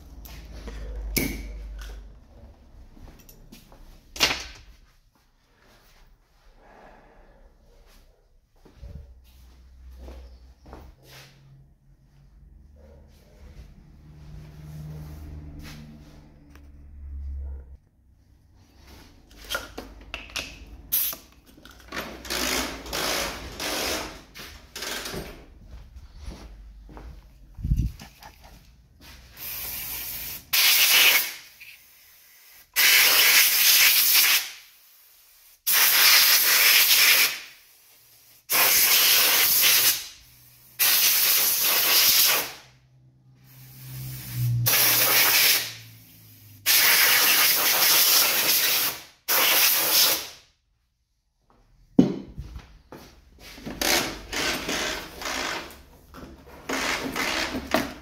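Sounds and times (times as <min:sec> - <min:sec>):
air blow gun hissing bursts: 0:29.4 - 0:42.6, 0:43.4 - 0:50.4.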